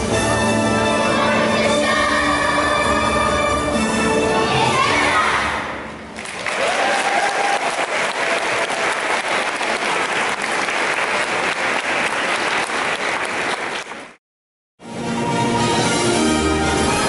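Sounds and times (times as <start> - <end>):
audience applauding: 6.2 - 14.2.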